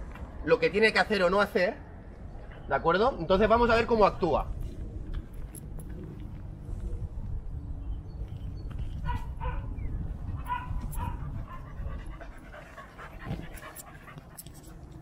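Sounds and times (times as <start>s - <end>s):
dogs panting: 9.0s - 15.0s
dogs whining and yipping: 9.0s - 15.0s.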